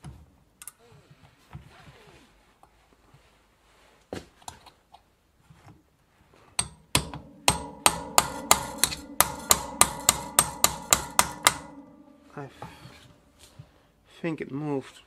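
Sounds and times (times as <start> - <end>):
hammer striking metal punch: 6.6 - 13.2.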